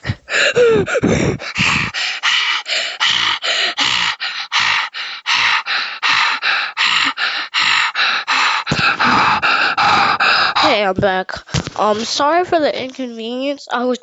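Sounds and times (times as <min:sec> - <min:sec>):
person panting heavily: 0:00.0 - 0:12.2.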